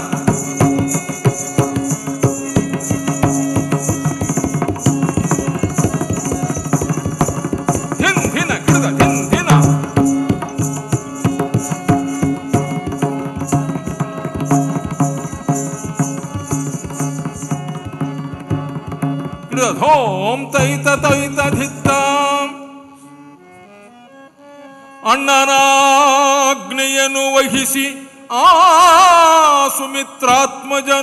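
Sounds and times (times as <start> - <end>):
hand drum strokes: 0.0 - 19.6
high jingling beat: 0.0 - 19.8
ornamented melodic phrase: 0.4 - 19.8.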